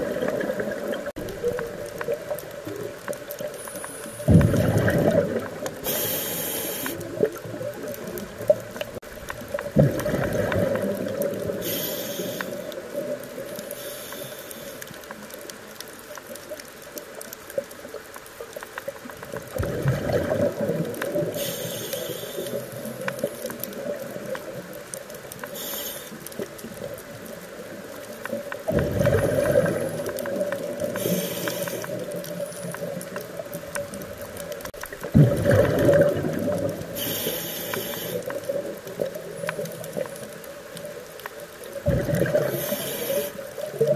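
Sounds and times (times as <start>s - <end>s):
bubbling exhalations underwater: 4.3s - 5.8s, 9.6s - 11.7s, 19.5s - 21.3s, 28.7s - 31.1s, 35.0s - 37.0s, 41.8s - 42.6s
hissing regulator inhalations: 5.8s - 7.2s, 11.6s - 12.7s, 13.6s - 14.9s, 21.3s - 23.0s, 25.4s - 26.4s, 30.8s - 32.7s, 36.9s - 38.6s, 42.4s - 43.6s.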